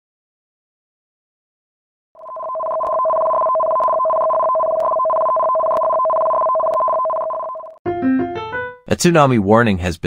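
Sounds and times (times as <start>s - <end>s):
two-tone electronic alert tone: 2.2s - 7.8s.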